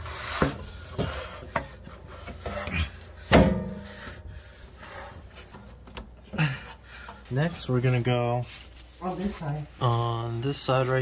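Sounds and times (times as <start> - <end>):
exhaust parts rubbing and knocking: 0.0 - 11.0.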